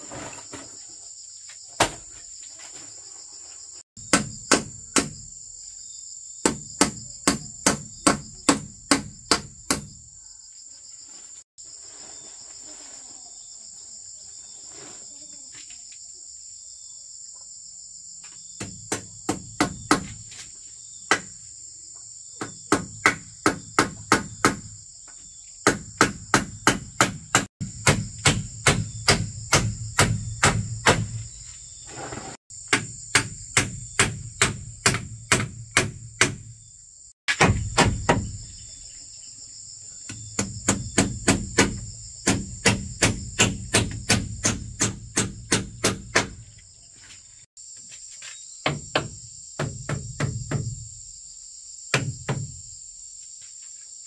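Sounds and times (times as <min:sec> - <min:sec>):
insects droning: 0:00.0 - 0:54.0
hammering strikes: 0:04.0 - 0:05.3, 0:06.4 - 0:09.9, 0:25.6 - 0:31.3, 0:32.7 - 0:36.5, 0:37.3 - 0:38.4, 0:40.1 - 0:46.4.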